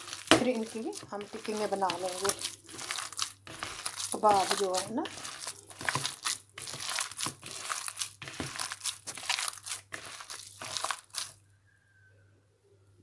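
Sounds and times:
hands squelching mashed potatoes: 0.0 - 11.4.

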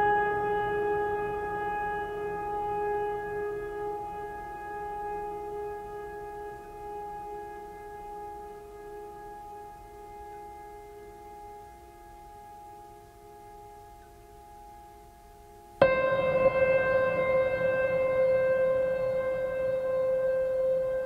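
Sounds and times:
held drone tone: 15.8 - 21.0.

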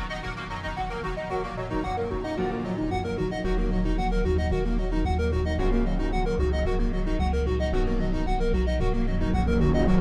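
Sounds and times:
electronic music with synthesizer: 0.0 - 10.0.

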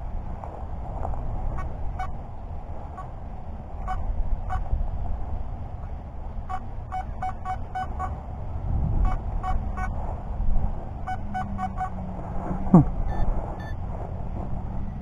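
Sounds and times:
metal detector beeps: 13.1 - 13.8.

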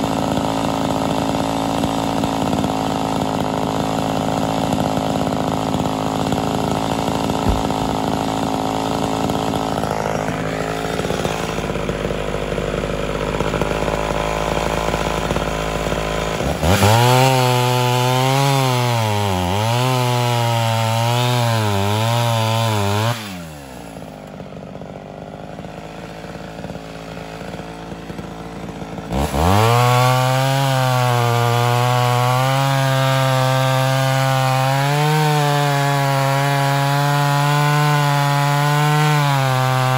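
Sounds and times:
chainsaw cutting log: 0.0 - 39.9.

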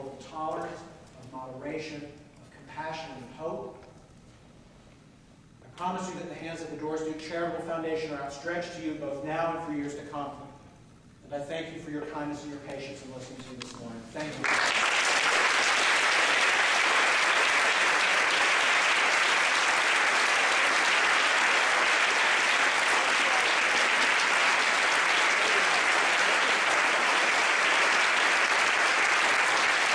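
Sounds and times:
audience applauding: 14.3 - 29.9.

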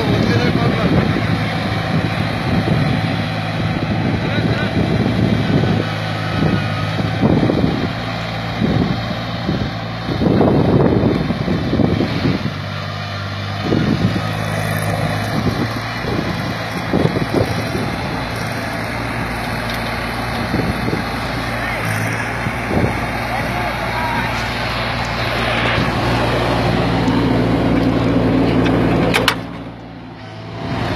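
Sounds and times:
wind buffeting microphone: 0.0 - 12.7, 13.6 - 21.4, 22.2 - 29.2
tractor diesel engine running: 0.0 - 30.9.

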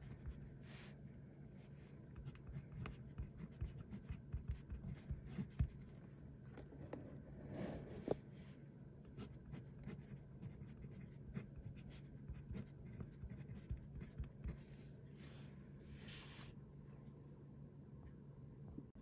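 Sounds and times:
pen nib scratching on paper: 9.2 - 14.6.

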